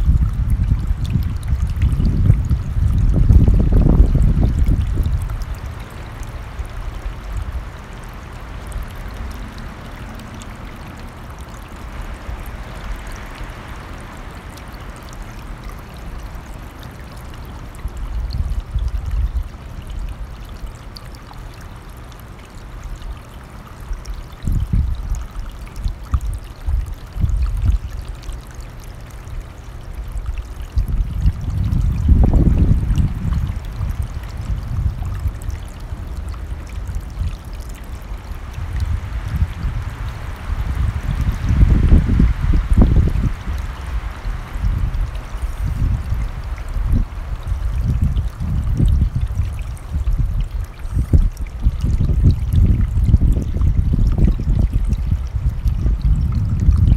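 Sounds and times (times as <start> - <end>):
wind gusts rumbling: 0.0 - 5.7, 30.8 - 50.5, 51.1 - 56.9
stream rushing: 4.6 - 18.4, 31.5 - 51.6.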